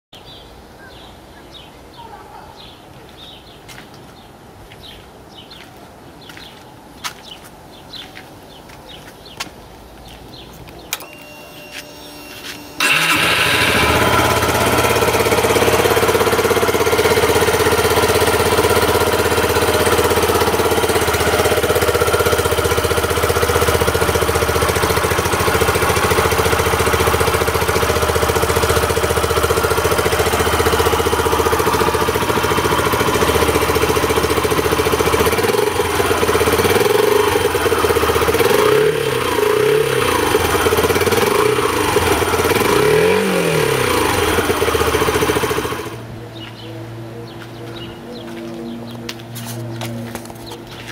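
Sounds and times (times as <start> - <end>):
motorcycle engine idling: 10.9 - 48.3.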